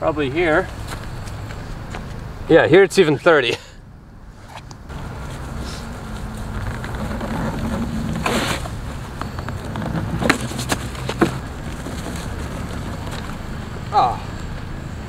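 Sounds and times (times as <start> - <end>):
wheel dropping onto grass: 5.3 - 13.5.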